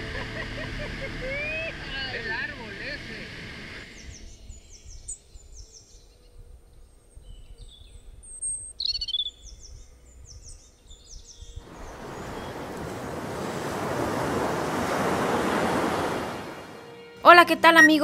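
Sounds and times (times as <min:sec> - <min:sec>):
birds chirping: 0:08.8 - 0:17.0
steady rushing noise: 0:11.6 - 0:16.8.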